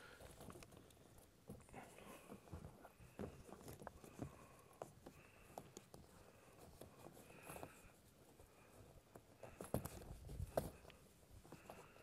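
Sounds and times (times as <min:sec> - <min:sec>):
nylon straps clicking and rustling: 0:08.9 - 0:12.0.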